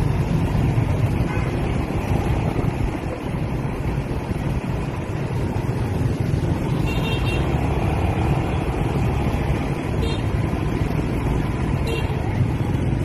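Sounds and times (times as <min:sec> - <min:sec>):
motorbike and scooter engines: 0:00.0 - 0:13.0
wind on microphone: 0:00.1 - 0:06.7.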